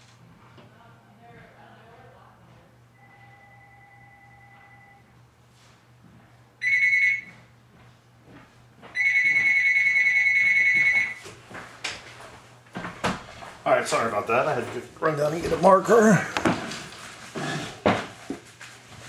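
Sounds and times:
high electronic ringing tone: 0:02.9 - 0:05.1, 0:06.6 - 0:07.4, 0:09.0 - 0:11.2.

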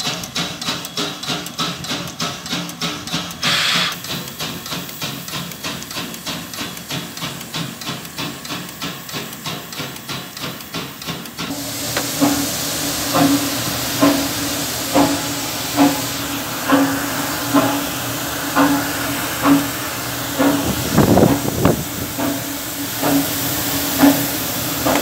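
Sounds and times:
steam hissing: 0:00.0 - 0:25.0
steam locomotive knocking: 0:00.0 - 0:25.0
heavy beat: 0:11.5 - 0:25.0.

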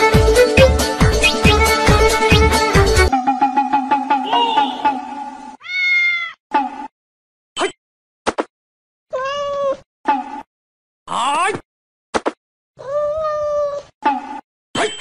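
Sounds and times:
cat meowing: 0:05.6 - 0:06.4, 0:09.1 - 0:09.8, 0:12.8 - 0:13.9.

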